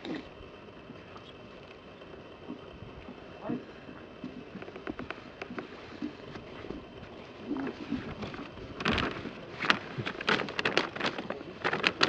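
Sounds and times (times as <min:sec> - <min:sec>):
plastic bag rustling: 0:05.6 - 0:12.0
sharp plastic crackles: 0:07.5 - 0:12.0.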